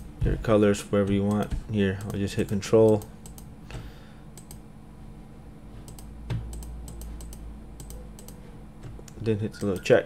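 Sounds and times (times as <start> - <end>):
low steady hum: 0.0 - 10.0
computer mouse and keyboard clicks: 1.1 - 3.5, 4.4 - 4.6, 5.8 - 10.0.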